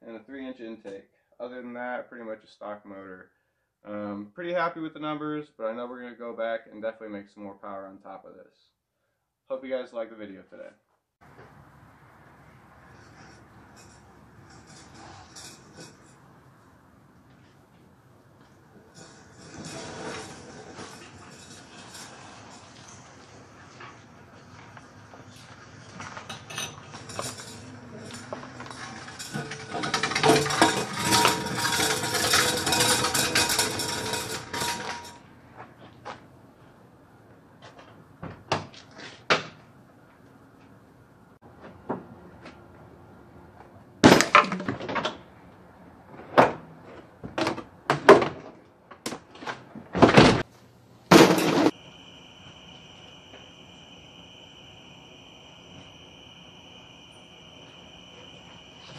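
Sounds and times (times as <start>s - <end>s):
metallic clicks and clanks: 26.2s - 35.2s
thuds and plastic clatters: 47.2s - 50.4s
cricket chirping: 51.3s - 58.9s.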